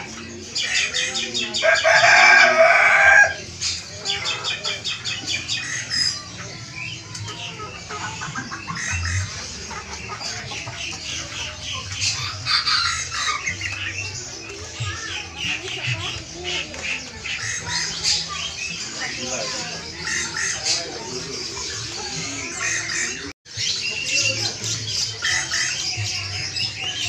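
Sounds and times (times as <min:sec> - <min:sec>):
small birds chirping: 0:00.0 - 0:27.0
rooster crowing: 0:01.6 - 0:03.4.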